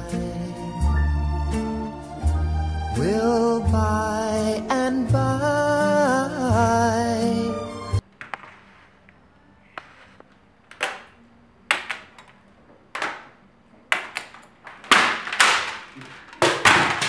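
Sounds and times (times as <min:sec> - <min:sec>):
plastic keyboard cracking: 0:10.7 - 0:17.0.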